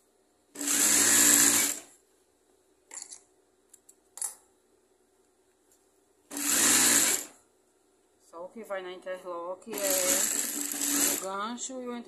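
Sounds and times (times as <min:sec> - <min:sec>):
sewing machine running: 0:00.6 - 0:01.9, 0:06.3 - 0:07.4, 0:09.7 - 0:11.3.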